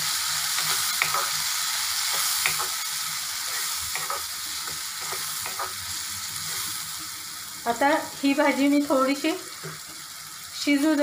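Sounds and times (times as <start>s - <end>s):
vegetables sizzling in oil: 0.0s - 11.0s
wooden spatula scraping pan: 3.4s - 5.8s.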